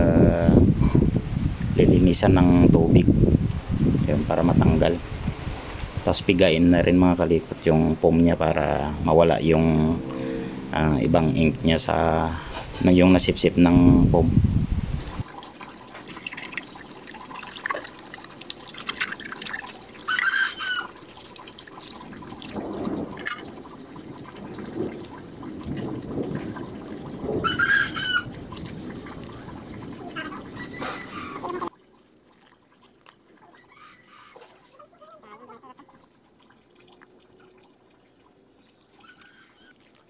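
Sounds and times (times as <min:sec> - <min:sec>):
water splashing and dripping: 0:15.0 - 0:40.0.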